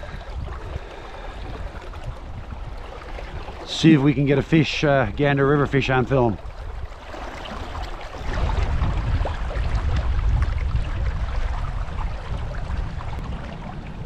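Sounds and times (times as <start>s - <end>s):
wind buffeting microphone: 0.0s - 14.0s
river water rushing: 6.2s - 8.8s.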